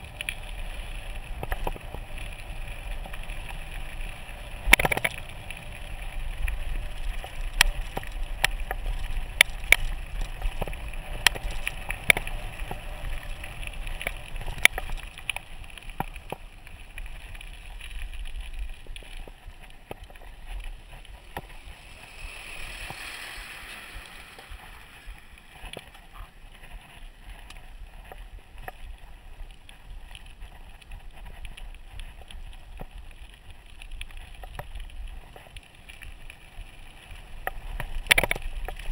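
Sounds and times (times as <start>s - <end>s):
bike tyres on gravel: 0.0s - 38.9s
truck passing: 21.7s - 25.4s.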